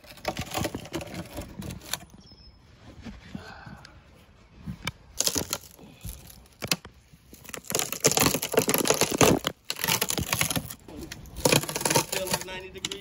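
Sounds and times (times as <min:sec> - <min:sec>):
wood cracking and splintering: 0:00.0 - 0:02.2, 0:05.1 - 0:13.0.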